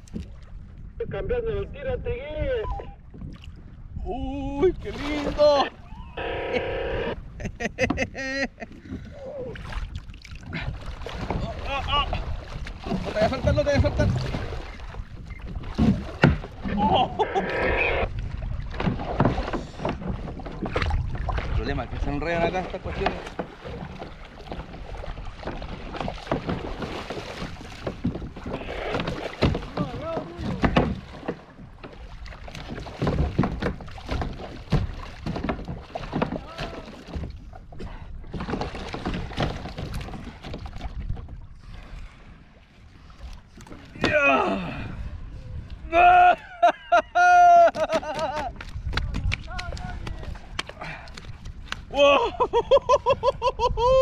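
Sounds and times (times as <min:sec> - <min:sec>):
wind on microphone: 0:00.0 - 0:26.8, 0:43.0 - 0:46.0, 0:48.1 - 0:54.0
water slapping against hull: 0:02.8 - 0:04.0, 0:04.6 - 0:54.0.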